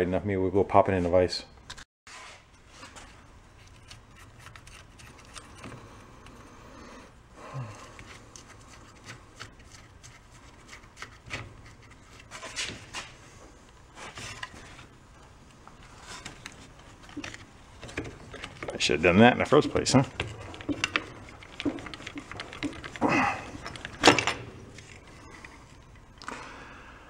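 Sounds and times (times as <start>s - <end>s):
small metal clicks and scrapes: 3.6s - 6.4s.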